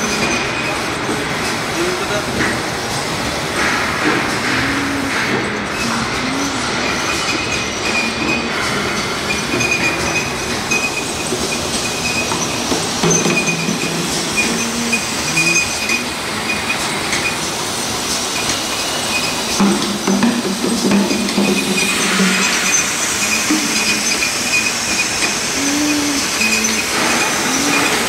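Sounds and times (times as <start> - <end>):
scattered clinks: 0.0 - 2.5, 3.6 - 19.9, 20.9 - 28.0
high-pitched squeal: 12.0 - 17.4, 21.5 - 28.0.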